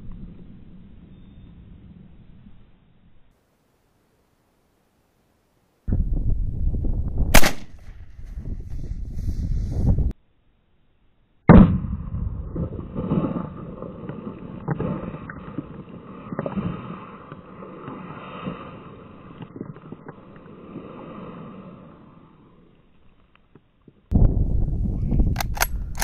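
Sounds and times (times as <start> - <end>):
loud gunshot: 7.3 - 8.0, 11.5 - 13.4.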